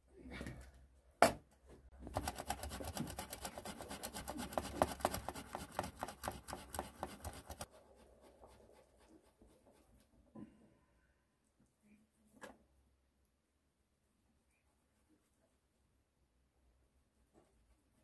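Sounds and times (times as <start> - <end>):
scraping strokes: 2.1 - 10.2.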